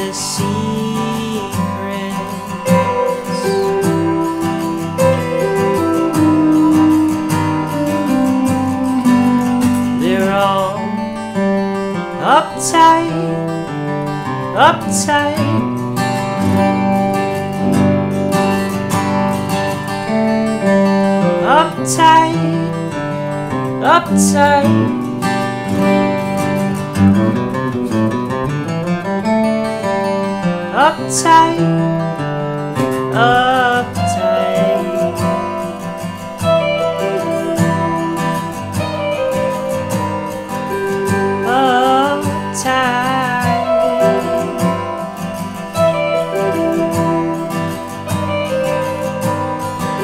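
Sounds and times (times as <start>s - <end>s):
man singing: 0.0s - 4.3s, 9.7s - 11.2s, 12.0s - 13.5s, 14.2s - 15.7s, 21.2s - 22.9s, 23.5s - 25.0s, 30.6s - 31.9s, 32.8s - 36.2s, 41.1s - 46.9s
acoustic guitar strumming: 0.0s - 50.0s
electric guitar: 0.0s - 50.0s.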